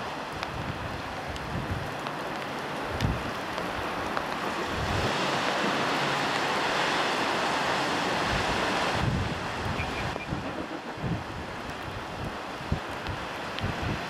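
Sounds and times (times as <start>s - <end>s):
surf washing: 0.0s - 14.0s
wind on microphone: 0.3s - 2.0s, 2.8s - 3.9s, 4.6s - 5.6s, 8.1s - 14.0s.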